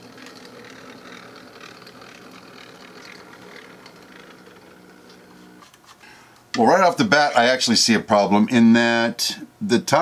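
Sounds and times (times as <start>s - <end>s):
electric motor hum: 0.0s - 5.8s.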